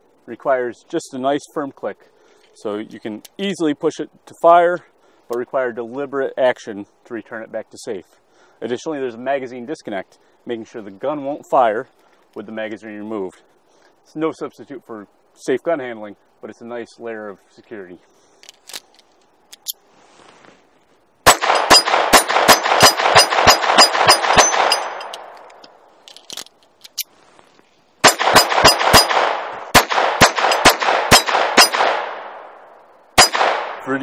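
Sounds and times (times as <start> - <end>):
pistol shots with echo: 21.2 - 25.4, 28.0 - 32.6, 33.2 - 33.9.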